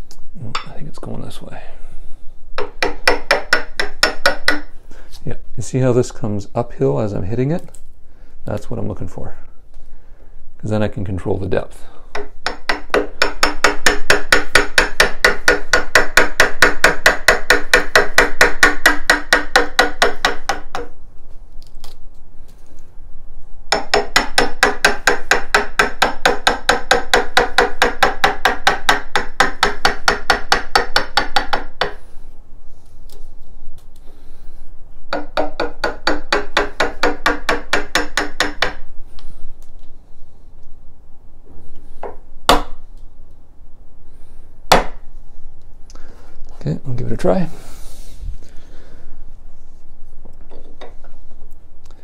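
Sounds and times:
hammer tapping a chisel: 2.6s - 4.7s, 12.1s - 20.9s, 23.7s - 32.0s, 35.1s - 38.9s.

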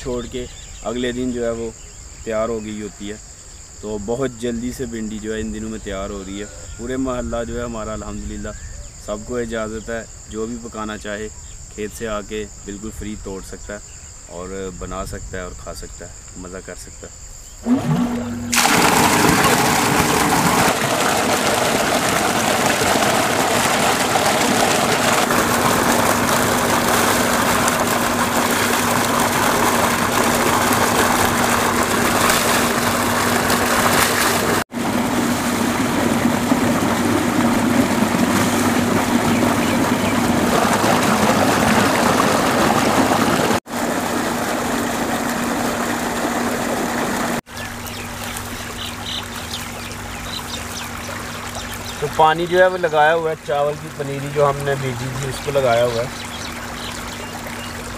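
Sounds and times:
steady mechanical hum: 14.4s - 57.9s
water gushing and splashing: 17.6s - 57.9s.

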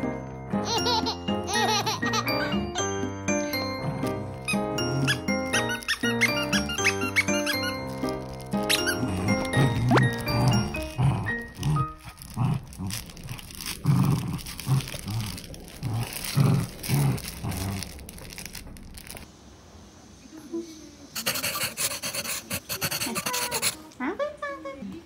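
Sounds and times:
scratchy rustling: 4.4s - 19.3s, 21.2s - 23.8s
small dog play-growling: 8.7s - 18.6s.

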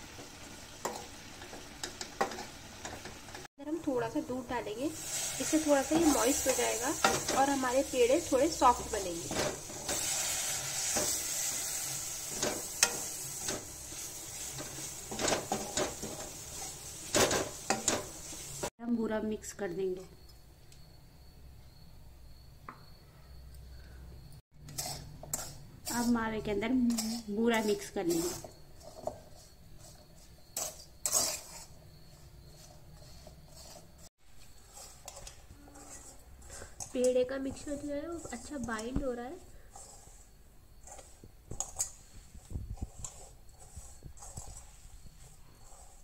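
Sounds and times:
spatula scraping a metal pan: 5.0s - 18.7s, 24.6s - 46.0s.

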